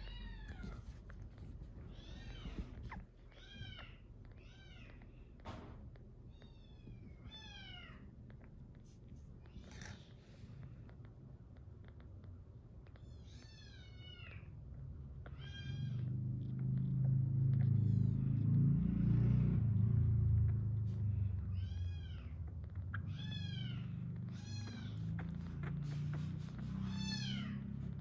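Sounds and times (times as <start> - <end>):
kittens mewing: 0.0 - 5.4, 11.8 - 28.0.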